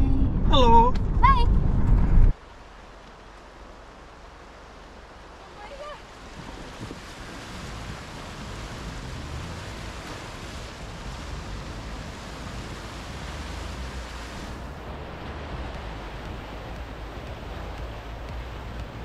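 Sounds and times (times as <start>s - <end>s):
low rumble: 0.0s - 2.5s, 7.0s - 19.0s
floodwater rushing and splashing: 2.3s - 19.0s.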